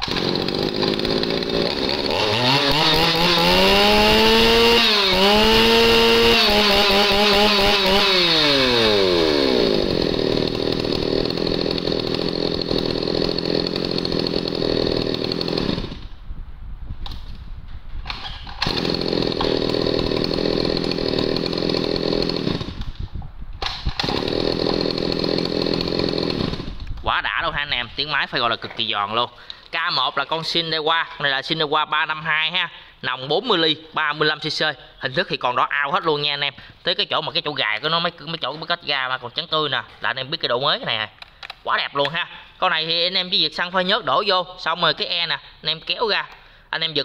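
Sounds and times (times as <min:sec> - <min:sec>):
chainsaw revving and idling: 0:00.0 - 0:16.2, 0:18.5 - 0:22.9, 0:23.6 - 0:26.9.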